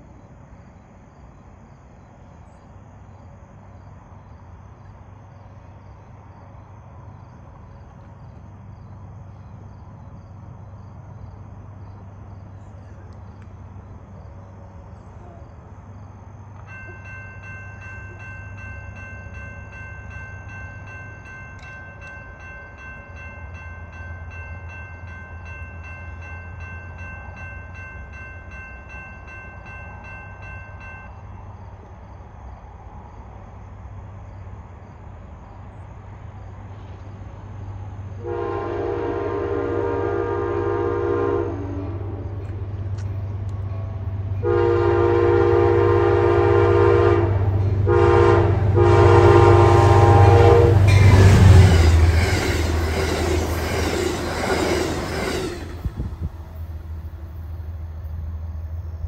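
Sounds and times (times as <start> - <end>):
crickets chirping: 0.0 - 59.0
diesel locomotive rumbling: 0.0 - 59.0
train air horn chord: 38.2 - 42.6, 44.4 - 56.0.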